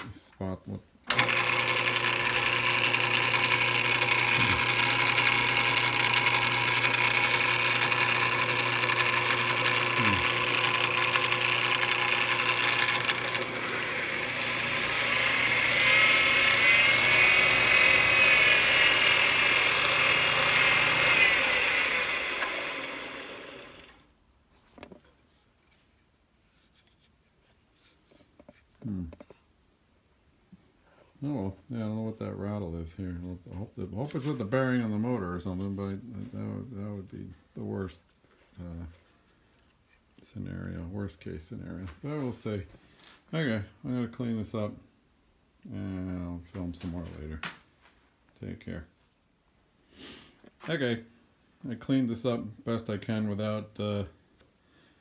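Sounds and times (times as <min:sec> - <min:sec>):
lathe motor humming and whining: 0:01.1 - 0:24.0.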